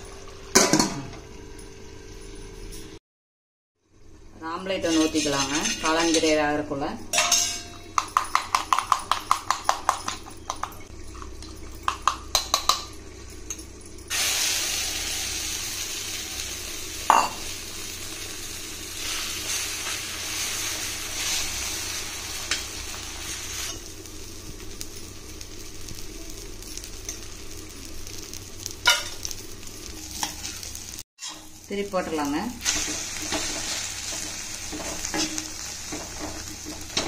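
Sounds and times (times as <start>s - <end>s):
egg sizzling in a pan: 14.1s - 37.0s.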